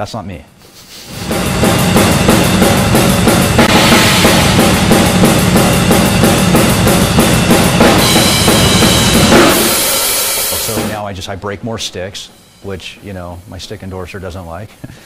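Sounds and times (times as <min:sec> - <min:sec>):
snare drum strokes: 0:00.8 - 0:11.1
bass drum strokes: 0:01.1 - 0:14.3
cymbals crashing: 0:01.1 - 0:14.8.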